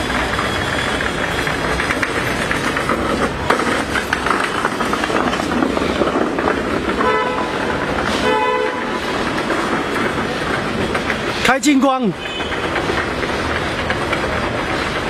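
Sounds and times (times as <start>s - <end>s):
steady rolling rumble: 0.0s - 15.0s.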